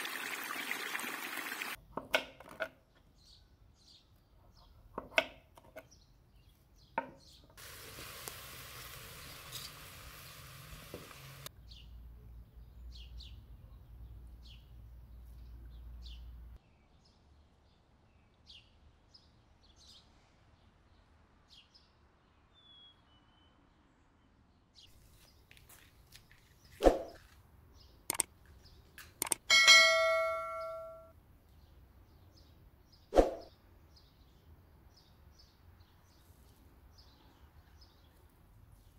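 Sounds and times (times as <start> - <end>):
small birds chirping: 2.9 - 17.4, 24.8 - 38.9
metallic clang ringing: 29.5 - 31.1.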